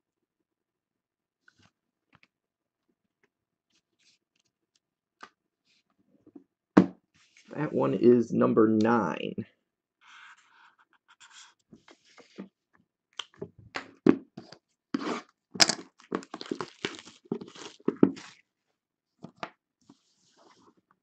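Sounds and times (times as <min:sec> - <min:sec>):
marker scratching on cardboard: 0:10.1 - 0:11.6.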